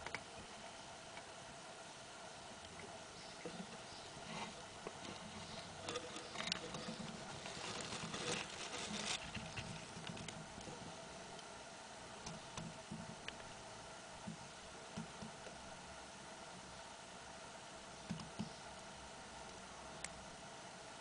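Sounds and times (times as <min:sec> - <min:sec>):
faint steady hum: 0:00.0 - 0:21.0
close-up rustling: 0:02.7 - 0:11.1
light scraping clicks: 0:04.3 - 0:07.3.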